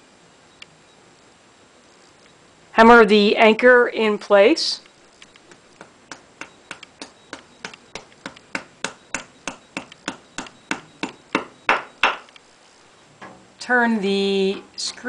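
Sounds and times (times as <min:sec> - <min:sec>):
hammer tapping plastic anchor: 0:05.8 - 0:12.3.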